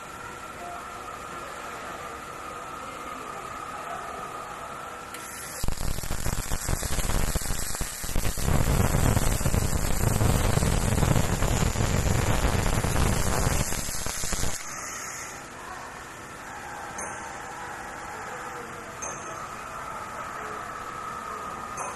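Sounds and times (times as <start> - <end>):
welding arc crackling: 5.1 - 15.4.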